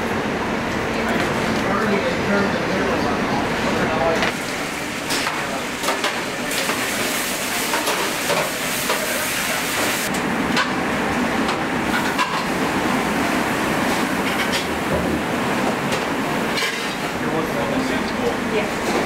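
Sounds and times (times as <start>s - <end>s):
steady kitchen hiss: 0.0s - 19.0s
pans and utensils clattering: 5.0s - 10.8s, 11.9s - 12.6s, 13.9s - 15.1s, 15.9s - 17.2s.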